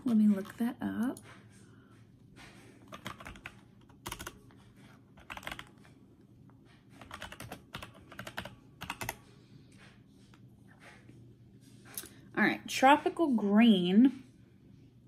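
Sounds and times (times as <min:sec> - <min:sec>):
keyboard typing clicks: 0:02.9 - 0:04.4, 0:05.2 - 0:05.7, 0:07.0 - 0:09.2.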